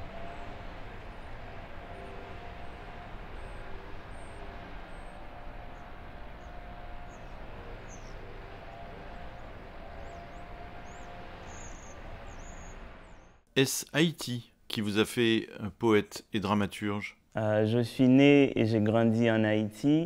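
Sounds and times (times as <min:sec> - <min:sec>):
distant rumble: 0:00.0 - 0:13.5
faint drone: 0:00.0 - 0:13.5
small birds chirping: 0:00.0 - 0:13.5.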